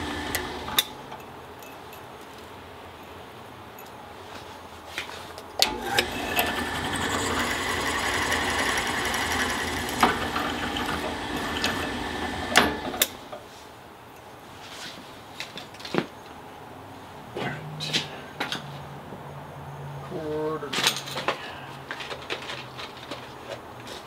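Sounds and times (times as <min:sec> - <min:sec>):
drill press motor running: 0:00.0 - 0:00.9, 0:05.6 - 0:13.3.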